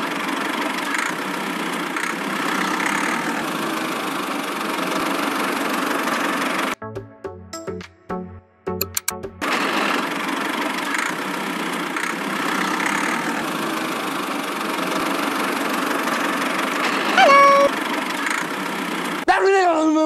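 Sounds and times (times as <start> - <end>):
toy tractor running: 0.0 - 6.8, 9.6 - 19.2
short horn tone: 17.2 - 17.7.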